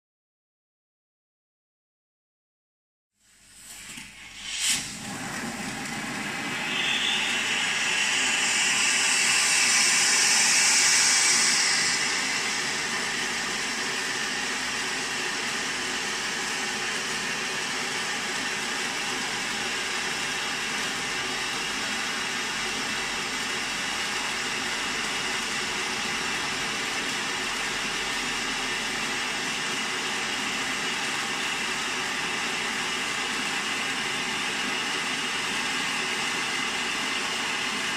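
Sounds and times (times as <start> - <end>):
fountain firework spraying hiss: 3.4 - 15.6.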